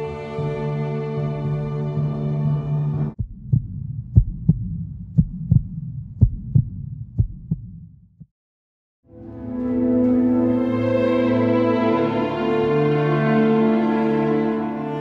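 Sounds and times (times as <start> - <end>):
music: 0.0 - 3.2, 9.0 - 15.0
heartbeat thumps: 3.2 - 8.3
low hum: 3.2 - 8.3.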